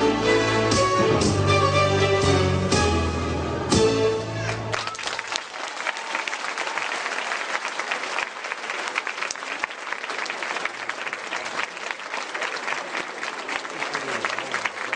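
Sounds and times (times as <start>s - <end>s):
audience applauding: 4.4s - 14.9s.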